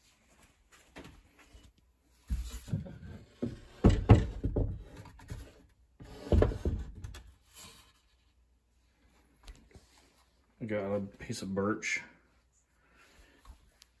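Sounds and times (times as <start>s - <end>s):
wooden shelf thumps and rubbing: 2.3s - 7.8s.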